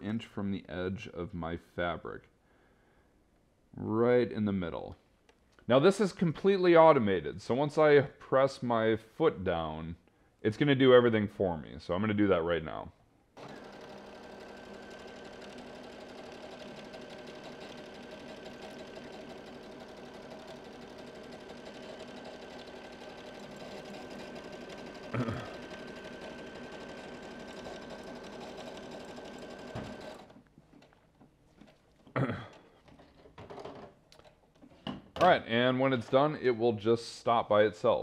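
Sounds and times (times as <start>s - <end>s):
sewing machine stitching: 13.4s - 31.0s.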